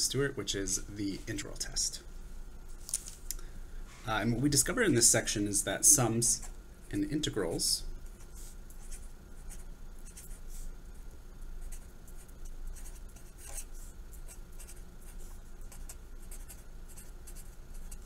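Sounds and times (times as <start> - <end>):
marker writing on paper: 11.6 - 18.0.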